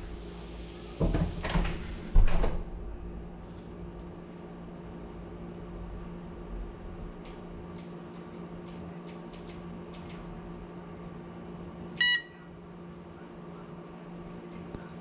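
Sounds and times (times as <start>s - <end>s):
steady low hum: 2.7s - 15.0s
short electronic beep: 12.0s - 12.4s.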